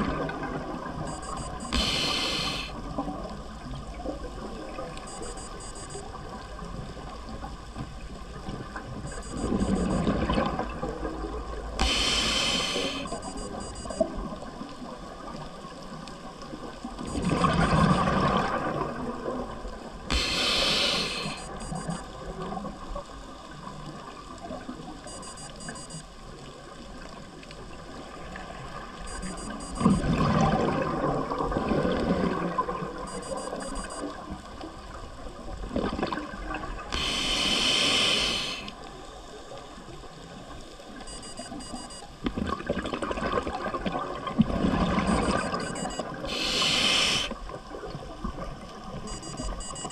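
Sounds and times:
steady water noise: 0:00.0 - 0:49.9
regulator hissing inhales: 0:01.6 - 0:02.8, 0:11.8 - 0:13.6, 0:20.1 - 0:21.6, 0:36.9 - 0:38.7, 0:46.3 - 0:47.4.

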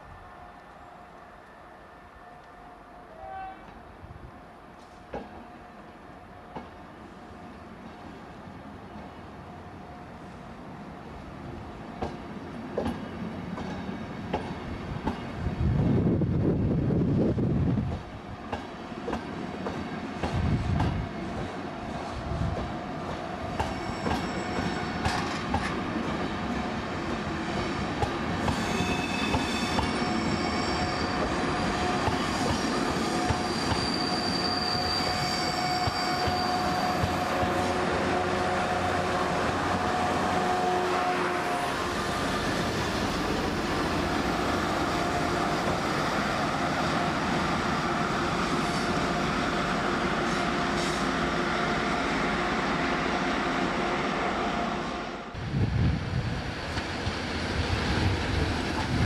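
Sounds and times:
train wheels squealing: 0:23.4 - 0:25.7, 0:27.5 - 0:37.8.

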